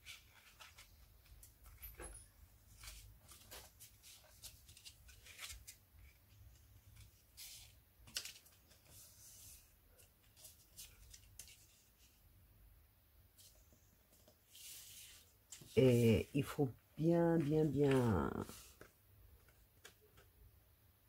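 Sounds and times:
cardstock rustling and scraping: 0:13.4 - 0:16.3, 0:17.2 - 0:20.3.

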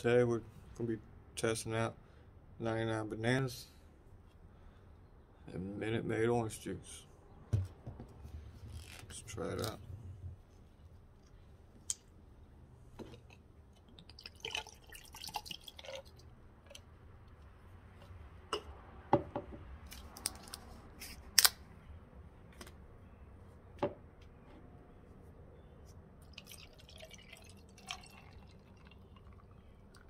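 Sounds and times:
liquid pouring over ice: 0:14.0 - 0:16.3, 0:26.2 - 0:30.0.

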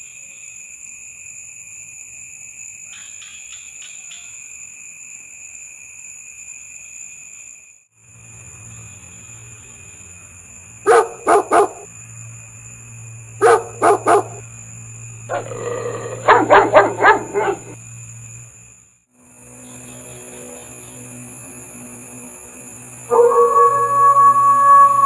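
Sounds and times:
dog barking: 0:10.9 - 0:11.9, 0:13.4 - 0:14.4, 0:15.3 - 0:17.8, 0:23.1 - 0:23.9
insect trilling: 0:13.6 - 0:18.4, 0:22.7 - 0:25.0.

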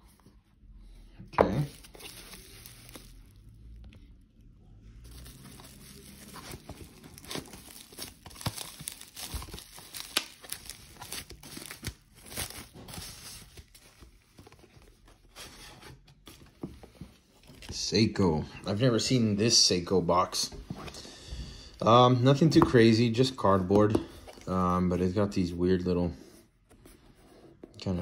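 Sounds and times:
bubble wrap crinkling: 0:01.5 - 0:15.4.

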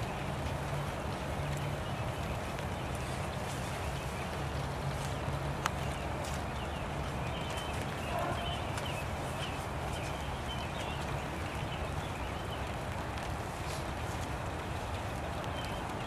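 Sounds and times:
drops tapping on umbrellas: 0:00.0 - 0:16.0
steady rain: 0:00.0 - 0:16.0.

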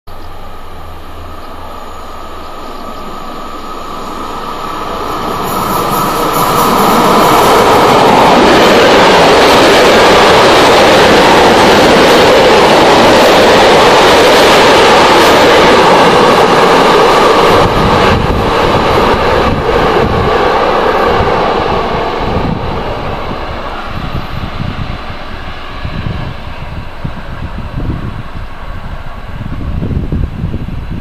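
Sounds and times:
electric train passing: 0:00.1 - 0:31.0.

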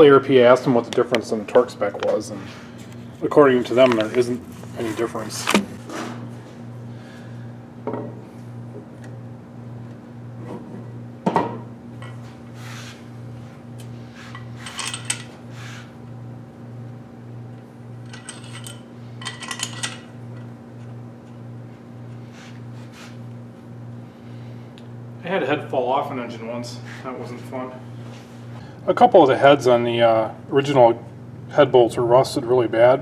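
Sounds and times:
metallic clinks and rattles: 0:14.4 - 0:15.4, 0:18.0 - 0:20.1.

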